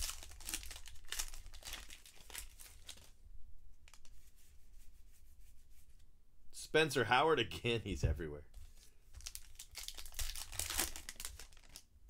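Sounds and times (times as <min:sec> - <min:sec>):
foil wrapper tearing and crinkling: 0:00.0 - 0:03.1, 0:09.2 - 0:11.9.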